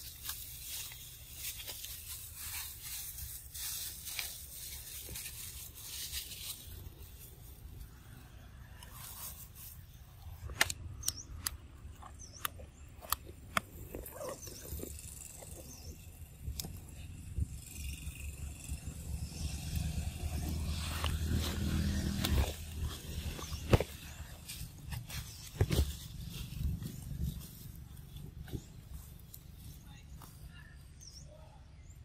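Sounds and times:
rustling dry leaves: 0:00.0 - 0:10.5, 0:12.8 - 0:31.1
sharp clicks and taps: 0:10.4 - 0:13.7
monkeys chewing: 0:10.4 - 0:17.0.

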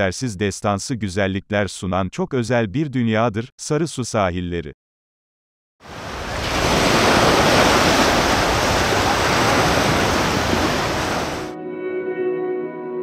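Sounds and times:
waves washing on pebbly beach: 0:05.9 - 0:11.5.

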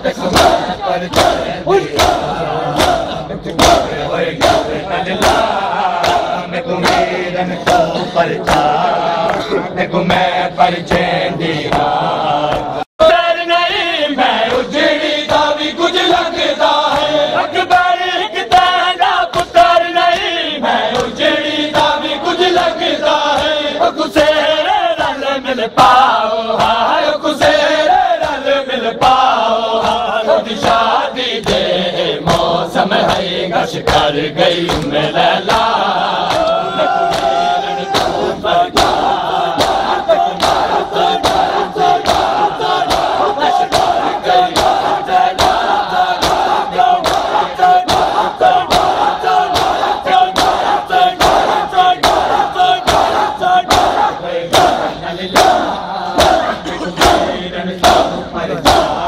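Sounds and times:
men chanting in unison: 0:00.0 - 0:59.0
rhythmic chest-beating slaps: 0:00.0 - 0:59.0.

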